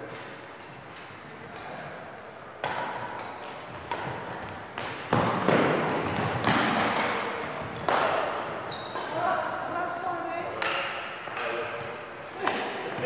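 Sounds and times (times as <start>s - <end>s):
badminton racket hitting shuttlecock: 2.6s - 9.3s.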